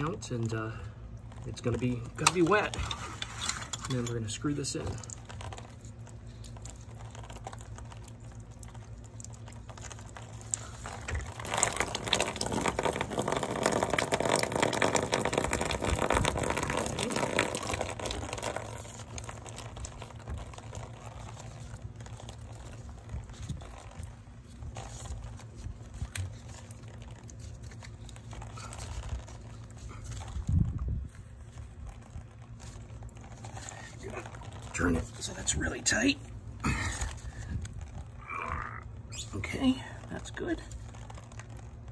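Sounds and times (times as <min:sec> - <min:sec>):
water running and splattering: 0:05.0 - 0:24.1.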